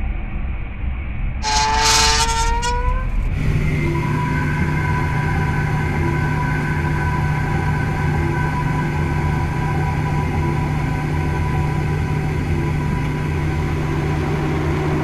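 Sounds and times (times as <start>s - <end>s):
drone of humming tones: 0.0s - 15.0s
low rumble: 0.0s - 15.0s
shrill whistle-like tone: 1.4s - 3.2s.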